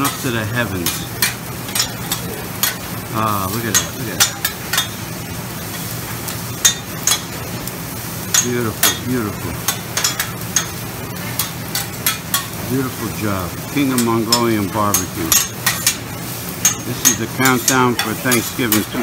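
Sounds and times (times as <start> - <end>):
metal spatulas clacking on griddle: 0.0 - 2.9, 3.6 - 5.0, 6.6 - 7.4, 8.3 - 10.8, 11.4 - 12.6, 13.8 - 16.0, 16.6 - 19.0
food sizzling: 0.0 - 19.0.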